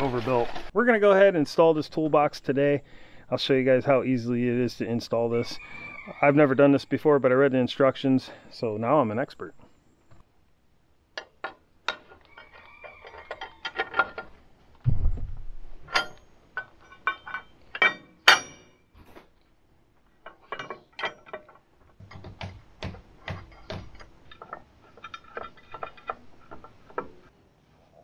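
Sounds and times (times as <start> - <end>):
dull thump: 14.8 - 15.8
metal clicks and clinks: 15.9 - 18.8, 20.2 - 22.3, 23.3 - 27.3.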